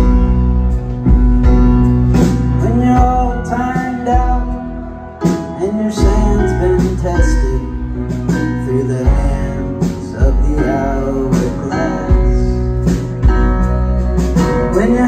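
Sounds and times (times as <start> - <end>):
keyboard: 0.0 - 15.0
live rock band playing: 0.0 - 15.0
person singing: 2.5 - 12.8, 14.4 - 15.0.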